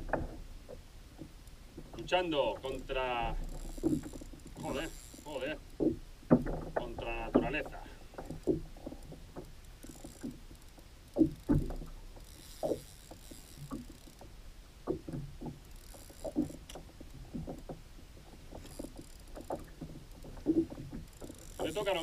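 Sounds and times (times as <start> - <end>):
knocks and thumps on plastic kayak: 0.0 - 4.8, 5.8 - 9.5, 11.2 - 11.9, 14.8 - 15.6, 16.3 - 22.0.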